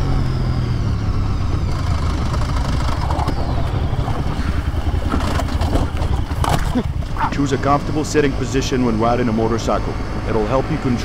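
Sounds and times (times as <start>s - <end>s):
motorcycle engine running: 0.0s - 11.0s
wind rushing over microphone: 1.2s - 8.4s.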